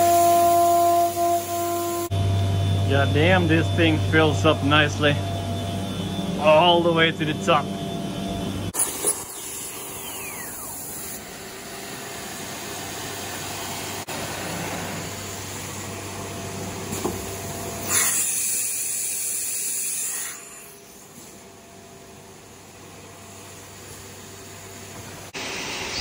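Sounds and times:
short falling whine: 0.0s - 11.4s.

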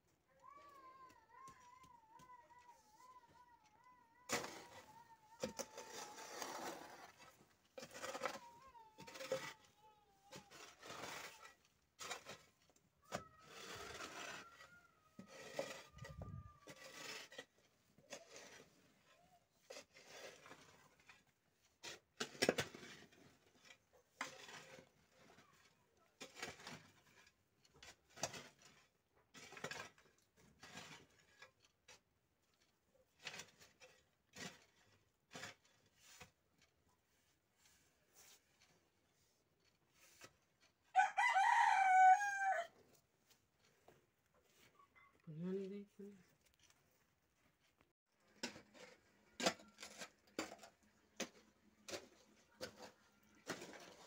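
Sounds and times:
hoe scraping soil and stones: 4.3s - 54.0s.

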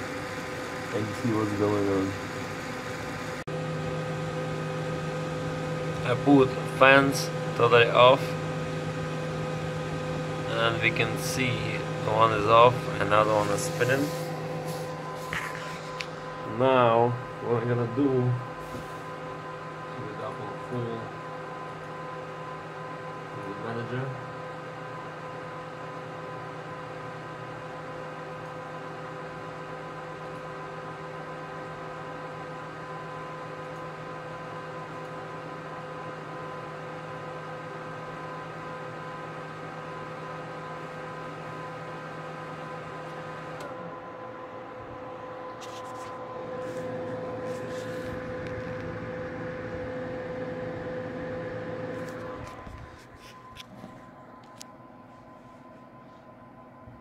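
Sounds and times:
cooling fans whirring: 0.0s - 57.0s
fan whine: 0.0s - 57.0s.

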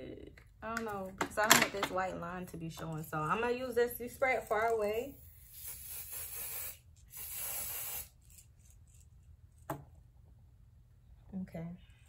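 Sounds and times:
spray bottle hissing: 5.3s - 8.4s.

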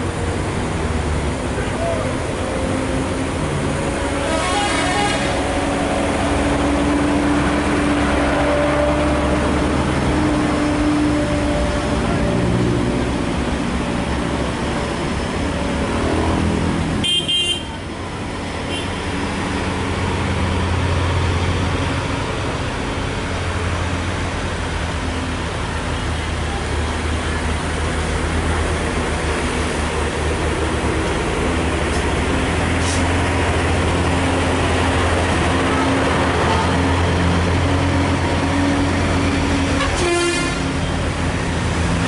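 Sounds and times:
diesel truck engines running: 0.0s - 42.0s
vehicle horn: 4.1s - 5.6s, 17.0s - 17.8s, 39.7s - 40.8s.

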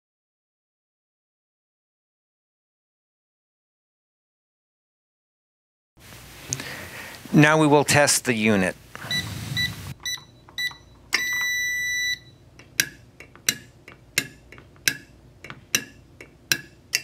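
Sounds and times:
keypad key-press beeps: 9.1s - 12.3s
long steady beep: 9.1s - 12.4s.

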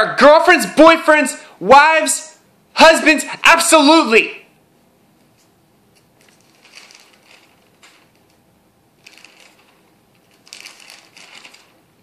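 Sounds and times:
faint rustling handling noise: 5.2s - 8.4s, 9.0s - 11.9s.

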